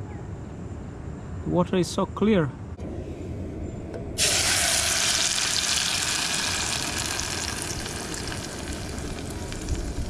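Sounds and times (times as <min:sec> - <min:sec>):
paste sizzling in hot oil: 0:04.2 - 0:10.0.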